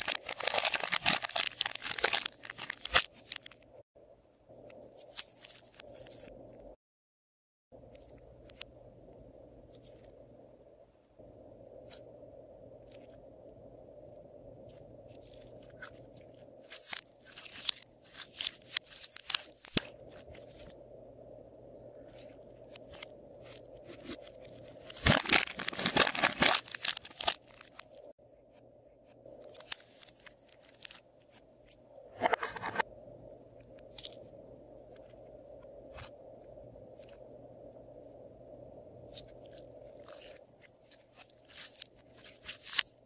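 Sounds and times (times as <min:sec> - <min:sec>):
slime crackling from piping bag: 0:00.0 - 0:03.5, 0:22.9 - 0:28.0, 0:40.0 - 0:42.9
plastic crinkling: 0:00.0 - 0:03.6, 0:15.2 - 0:20.7, 0:22.2 - 0:28.1, 0:39.2 - 0:43.0.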